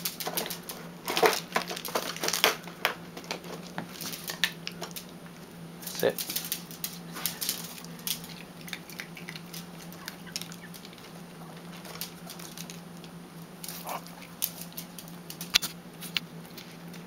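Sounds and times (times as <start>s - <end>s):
steady low hum: 0.0s - 17.0s
dog claws clicking on tile: 6.0s - 16.2s.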